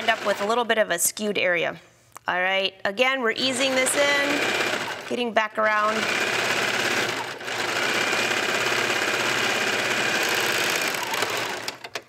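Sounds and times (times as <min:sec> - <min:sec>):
overlock sewing machine running: 0:00.0 - 0:00.4, 0:03.7 - 0:05.1, 0:05.8 - 0:12.0.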